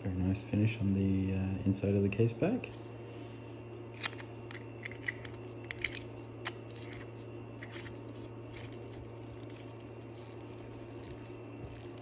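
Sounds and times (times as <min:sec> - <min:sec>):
watch case back clicking and scraping: 0:04.0 - 0:12.0.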